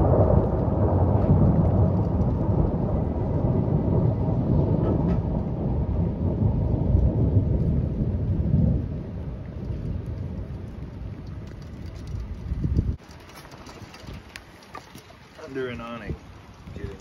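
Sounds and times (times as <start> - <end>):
rolling thunder: 0.0 - 13.0.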